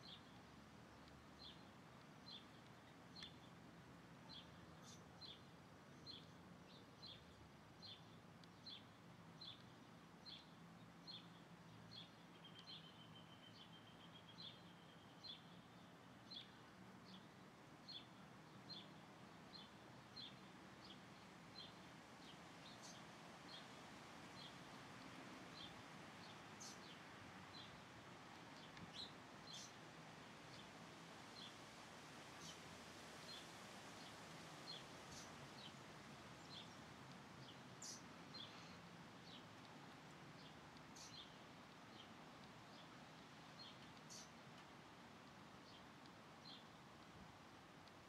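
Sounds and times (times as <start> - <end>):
small bird chirping: 25.6 - 27.8, 28.6 - 29.8, 37.4 - 39.4, 40.4 - 42.1, 43.6 - 44.4.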